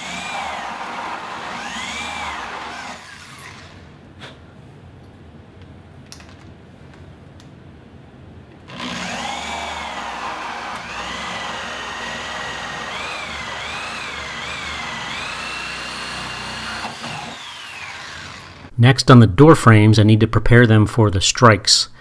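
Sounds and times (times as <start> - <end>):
drill hole saw cutting wood: 0.0 - 3.8, 8.7 - 18.7.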